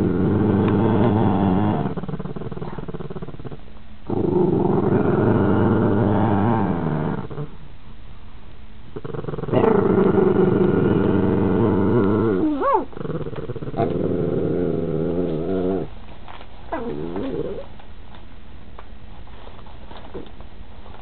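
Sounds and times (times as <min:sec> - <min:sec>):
puppies growling: 0:00.0 - 0:07.6, 0:09.0 - 0:16.0, 0:16.7 - 0:17.7
puppy whining: 0:09.2 - 0:15.9, 0:16.7 - 0:17.8.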